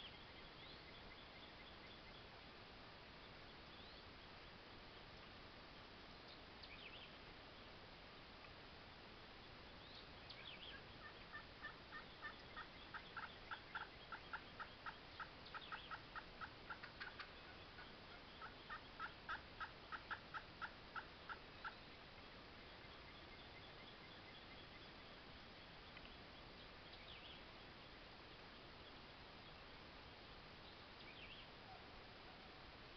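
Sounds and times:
faint songbird chirps: 0.0 - 32.9
wild turkey yelping: 10.7 - 21.8.

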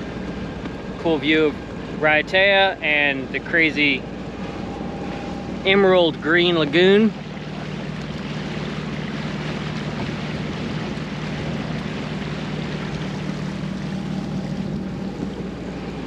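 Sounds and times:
boat engine droning: 0.0 - 16.0
rushing water: 0.0 - 16.0
wind: 0.0 - 16.0.

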